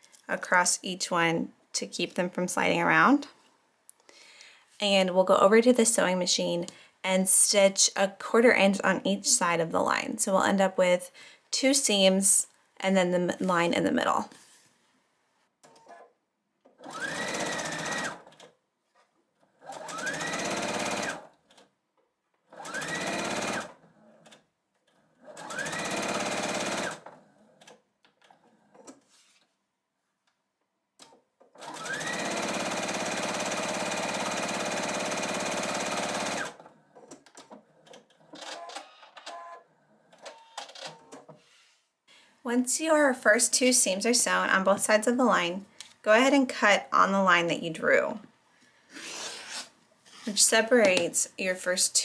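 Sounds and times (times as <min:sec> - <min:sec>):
sewing machine motor whine: 0:16.8 - 0:18.3, 0:19.6 - 0:21.3, 0:22.5 - 0:23.8, 0:25.3 - 0:27.2, 0:31.6 - 0:36.6.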